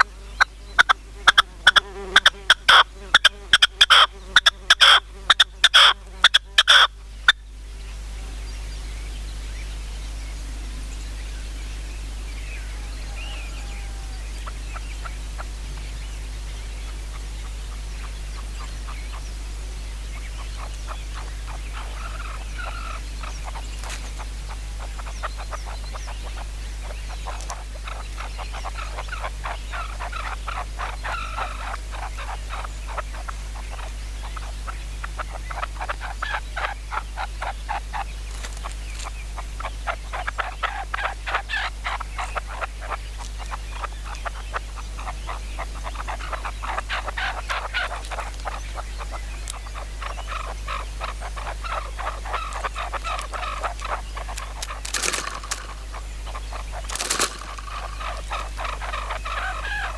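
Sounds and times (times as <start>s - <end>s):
faint small bird chirps: 0.0s - 59.9s
steady low hum: 0.0s - 59.9s
partridges clicking calls: 0.8s - 7.4s, 20.2s - 59.9s.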